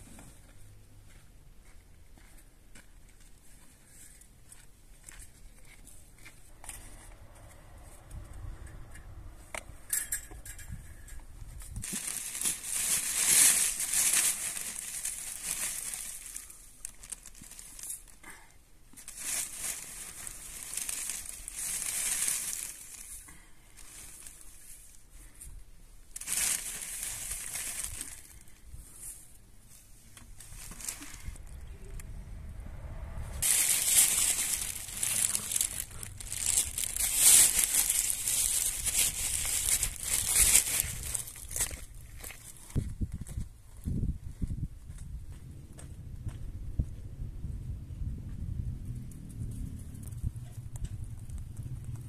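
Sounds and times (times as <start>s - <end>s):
dry hay pulled out: 10.6s - 18.2s, 19.0s - 32.0s, 33.3s - 42.9s
plastic bag rustling: 11.5s - 25.4s, 26.0s - 31.8s, 33.4s - 42.8s.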